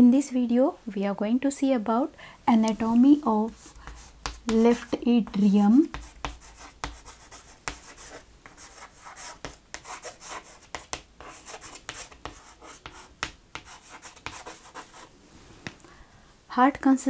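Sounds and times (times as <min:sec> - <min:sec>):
chalk scratching on chalkboard: 0:02.8 - 0:15.8.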